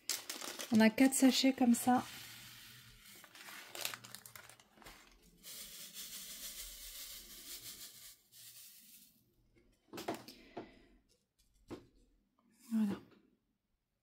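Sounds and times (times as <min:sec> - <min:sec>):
beads rattling in plastic tray: 0:00.0 - 0:02.0, 0:03.1 - 0:09.0.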